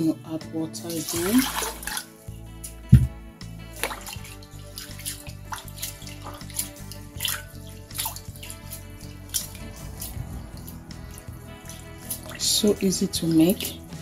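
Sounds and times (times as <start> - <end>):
water splashes: 0.7 - 2.2, 2.9 - 14.0
hand swishing rice in water: 0.9 - 2.2, 3.8 - 12.6.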